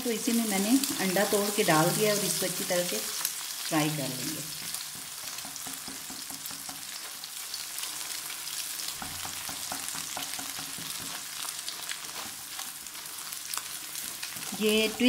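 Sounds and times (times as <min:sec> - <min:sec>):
egg sizzling in oil: 0:00.1 - 0:15.0
spatula scraping a wok: 0:04.7 - 0:15.0.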